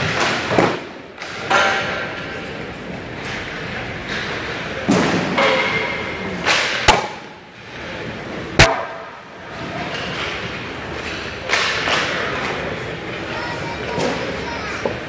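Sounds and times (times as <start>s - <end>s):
hockey pucks and sticks cracking: 0.0s - 2.4s, 3.2s - 7.4s, 8.6s - 9.2s, 9.8s - 12.7s.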